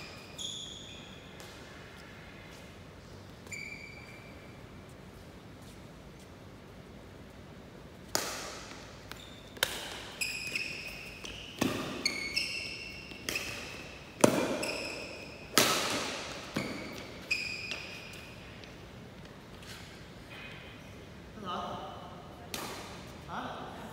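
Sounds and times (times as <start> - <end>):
shoes squeaking on court floor: 0.0 - 6.4, 8.6 - 21.0
racket striking shuttlecock: 8.0 - 18.1, 22.5 - 23.0.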